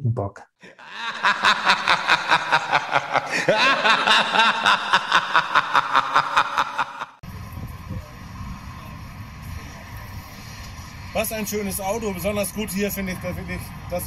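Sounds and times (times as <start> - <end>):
pulsing laughter: 0.6 - 7.2.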